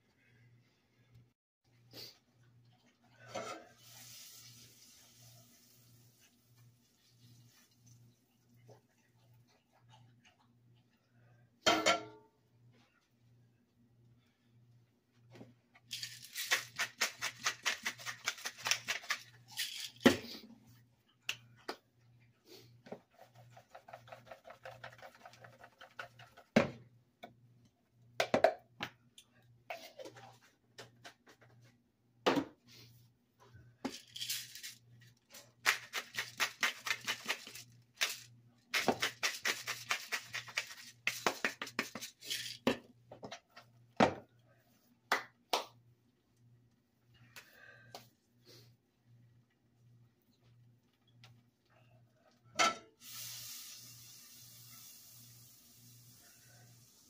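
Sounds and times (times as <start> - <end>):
bottles set down on countertop: 32.2 - 32.6, 44.0 - 44.3.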